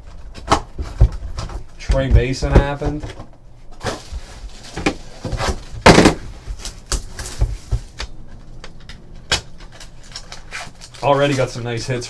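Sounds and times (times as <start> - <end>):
packaging rustle: 3.8 - 12.0.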